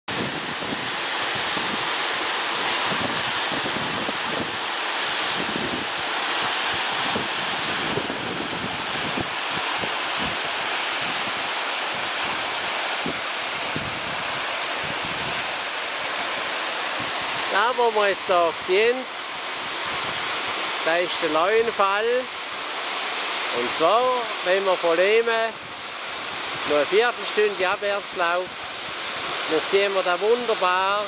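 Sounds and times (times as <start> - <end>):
wind buffeting microphone: 0.1 - 4.6, 5.2 - 15.6
waterfall rushing: 0.1 - 31.0.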